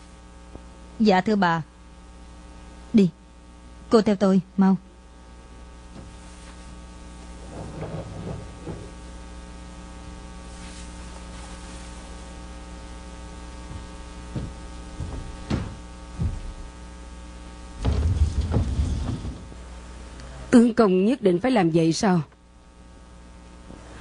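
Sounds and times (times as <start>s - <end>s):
electrical mains hum: 0.0s - 24.0s
soft rustles: 6.1s - 9.0s, 10.5s - 12.3s
light knocks: 13.7s - 16.6s.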